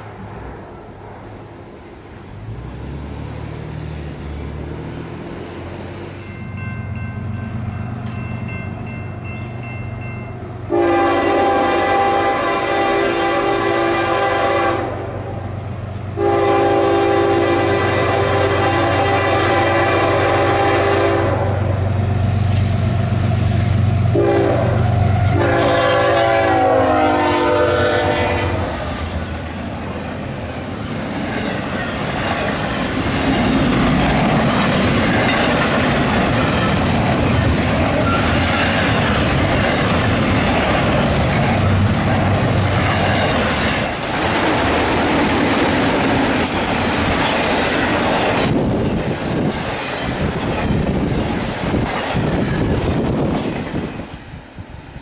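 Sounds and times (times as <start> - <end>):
diesel engines droning: 0.0 - 6.3
locomotive air horn blasts: 10.7 - 15.1, 16.2 - 21.7, 24.1 - 28.9
train cars clattering over rail joints: 30.9 - 54.0.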